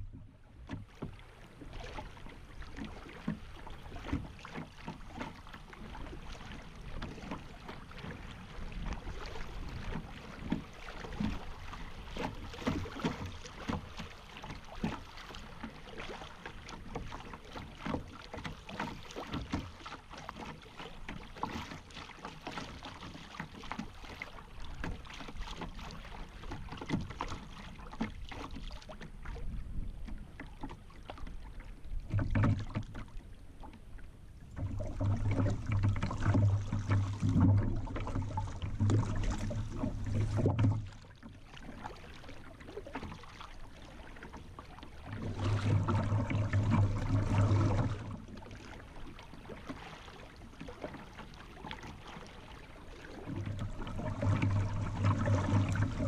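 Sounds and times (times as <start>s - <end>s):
water splashing against kayak hull: 0.0s - 56.0s.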